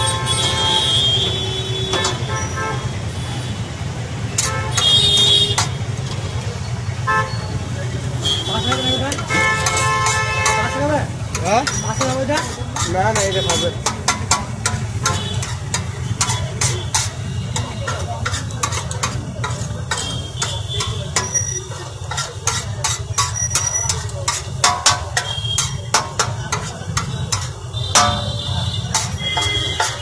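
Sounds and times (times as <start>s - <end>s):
metal spatula scraping griddle: 8.6s - 30.0s.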